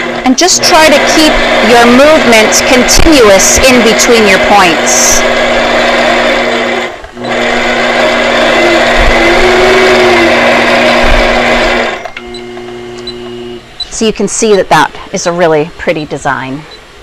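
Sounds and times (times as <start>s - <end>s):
quilting machine stitching: 0.0s - 13.6s
machine hum: 0.0s - 15.1s.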